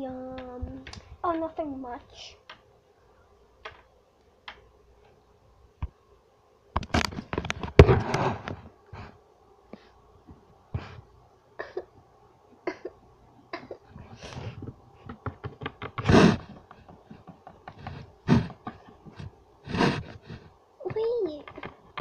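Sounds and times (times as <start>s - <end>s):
plastic figures clicking and tapping: 0.2s - 1.5s, 3.6s - 4.7s, 15.0s - 19.3s, 20.8s - 22.0s.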